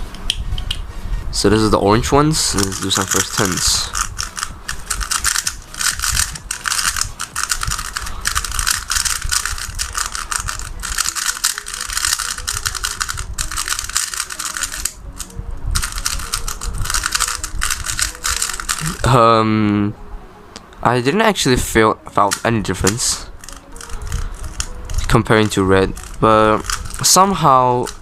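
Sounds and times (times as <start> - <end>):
plastic cube layers clacking: 2.6 - 19.0, 22.3 - 27.2.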